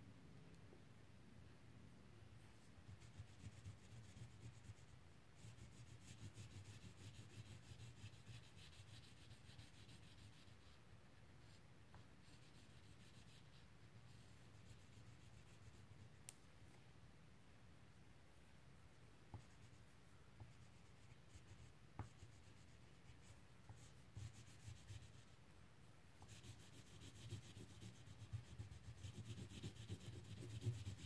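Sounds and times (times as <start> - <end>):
crayon scratching on paper: 2.9 - 10.8, 12.2 - 15.8, 26.2 - 31.0.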